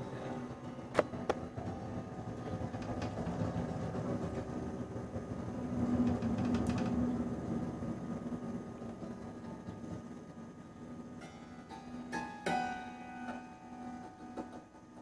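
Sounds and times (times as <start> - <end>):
slow sustained instrumental music: 0.0 - 2.9, 8.2 - 15.0.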